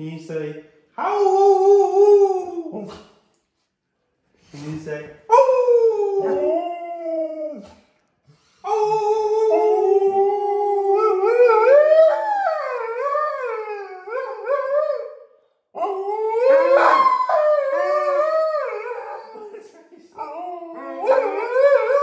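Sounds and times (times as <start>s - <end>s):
dogs howling: 5.3s - 7.7s, 8.9s - 15.2s, 15.8s - 19.6s, 20.2s - 22.0s.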